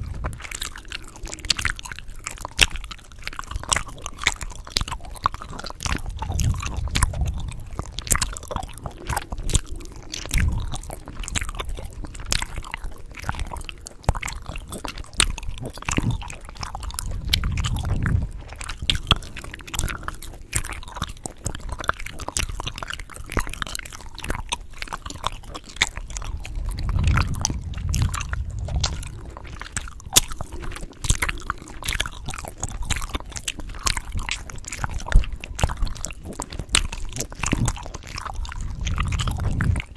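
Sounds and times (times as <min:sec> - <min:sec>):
gum chewing smacks and snaps: 0:00.0 - 0:39.9
low thuds: 0:26.1 - 0:30.4.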